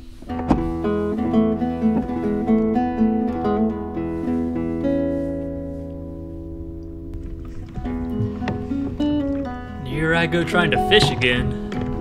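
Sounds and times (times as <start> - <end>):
acoustic guitar picking melody: 0.0 - 12.0.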